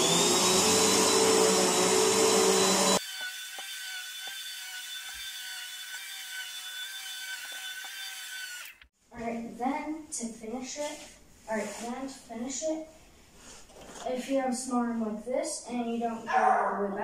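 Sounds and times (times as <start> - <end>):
vacuum cleaner running: 0.0 - 3.0.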